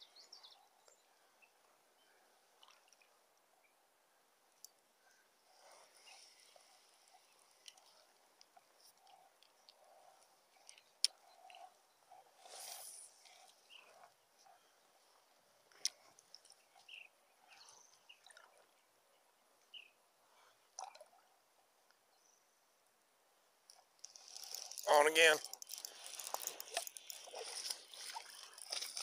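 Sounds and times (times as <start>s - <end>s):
short hiss: 12.5s - 13.2s.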